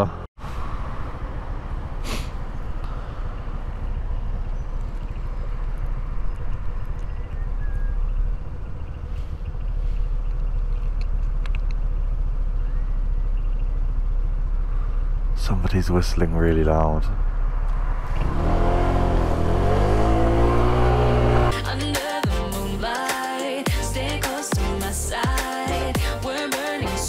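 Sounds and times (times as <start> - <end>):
road traffic: 0.0 - 21.6
scooter engine idling: 0.8 - 15.4.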